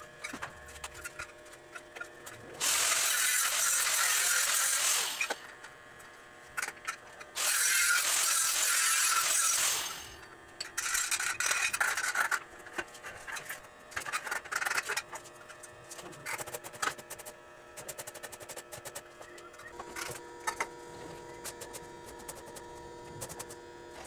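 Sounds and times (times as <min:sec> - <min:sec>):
arc welding crackle and hiss: 0:02.6 - 0:05.5, 0:07.4 - 0:10.2.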